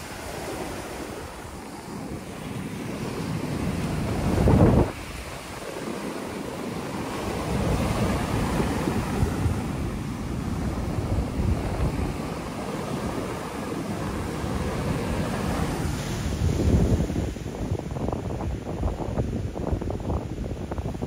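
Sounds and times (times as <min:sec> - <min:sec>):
ocean surf breaking on beach: 0:00.0 - 0:21.0
wind buffeting microphone: 0:00.0 - 0:21.0.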